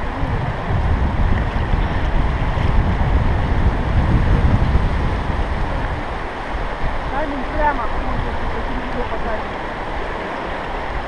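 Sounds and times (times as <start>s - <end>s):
river water rushing: 0.0s - 11.0s
wind buffeting microphone: 0.0s - 11.0s.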